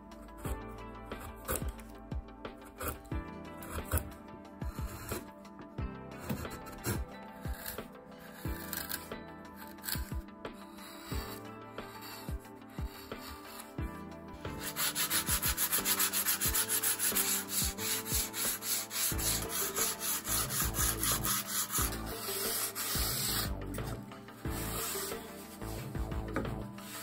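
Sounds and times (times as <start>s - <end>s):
sandpaper rubbing on wood: 6.2s - 13.8s, 14.5s - 27.0s.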